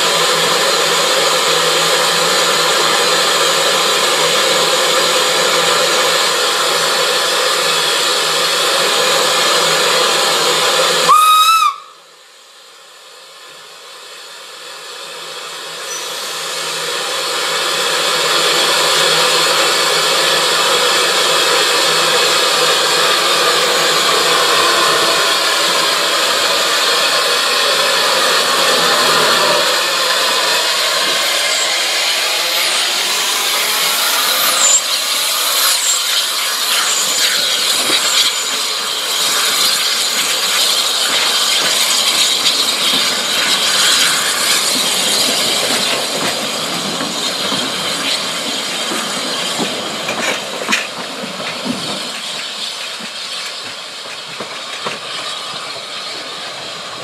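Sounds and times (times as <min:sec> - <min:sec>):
steam locomotive hissing: 0:00.0 - 0:57.0
steam whistle blast: 0:11.0 - 0:12.1.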